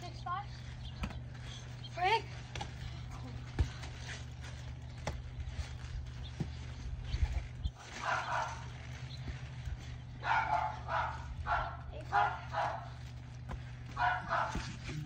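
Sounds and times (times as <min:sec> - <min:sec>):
dog barking: 0:08.0 - 0:08.6, 0:10.2 - 0:13.0, 0:14.0 - 0:14.7.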